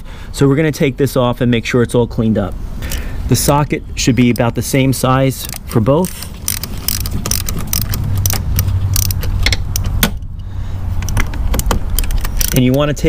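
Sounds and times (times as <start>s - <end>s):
steady low hum: 0.0s - 13.0s
socket ratchet clicking: 5.3s - 12.9s.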